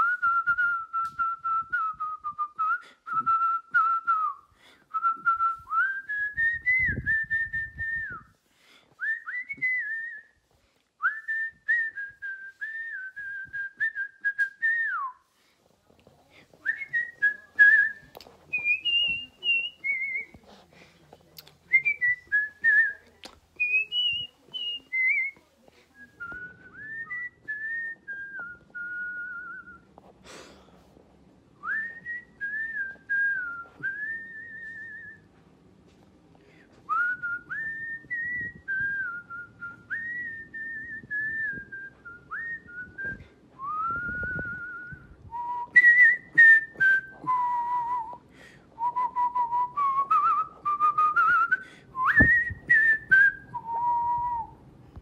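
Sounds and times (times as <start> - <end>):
person whistling melodies: 0.0 - 8.3, 36.9 - 48.2, 48.8 - 54.5.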